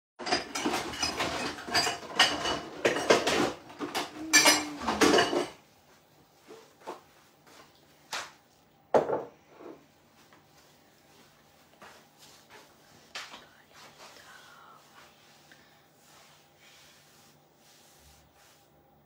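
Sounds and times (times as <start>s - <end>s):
dishes and cutlery clattering: 0.2s - 5.6s.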